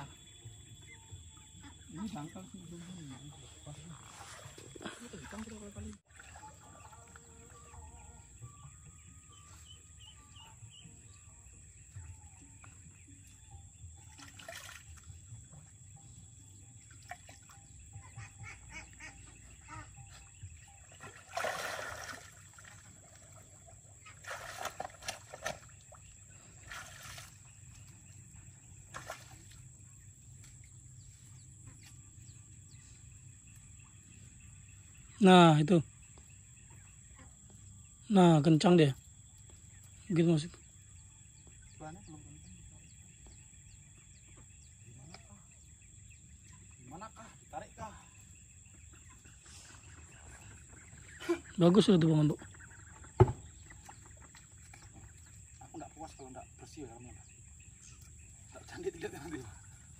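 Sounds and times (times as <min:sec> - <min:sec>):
water splashing: 0:02.0 - 0:07.7, 0:14.1 - 0:15.2, 0:20.8 - 0:27.7.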